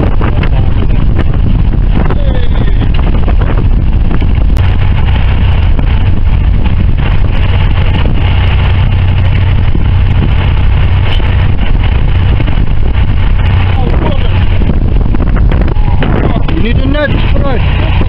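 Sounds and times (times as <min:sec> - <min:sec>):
boat engine humming: 0:00.0 - 0:18.0
loud rushing noise: 0:00.0 - 0:18.0.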